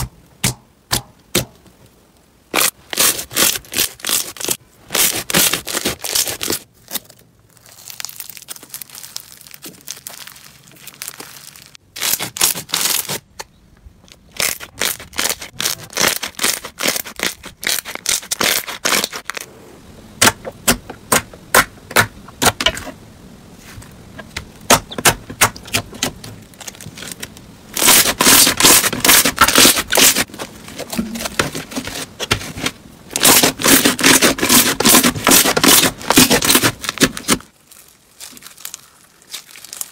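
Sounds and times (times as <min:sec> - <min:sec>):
slime crackling: 0:02.5 - 0:13.2, 0:14.1 - 0:19.6, 0:25.7 - 0:39.9
hands squishing slime: 0:30.9 - 0:39.9.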